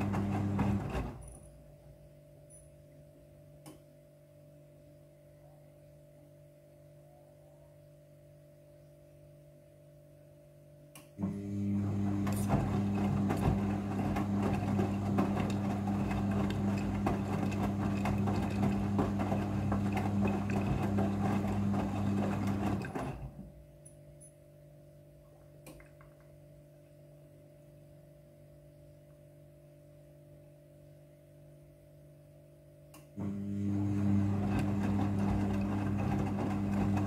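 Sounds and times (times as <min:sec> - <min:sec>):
washing machine motor hum: 0:00.0 - 0:02.1, 0:11.2 - 0:24.3, 0:33.1 - 0:37.0
water and clothes churning: 0:12.0 - 0:23.3, 0:33.8 - 0:37.0.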